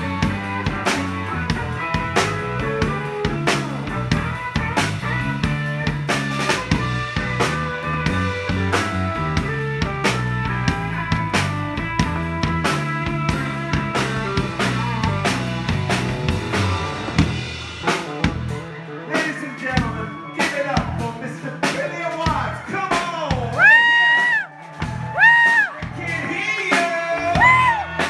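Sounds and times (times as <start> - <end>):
bass: 0.0 - 28.0
drum kit: 0.0 - 28.0
electric guitars: 0.0 - 28.0.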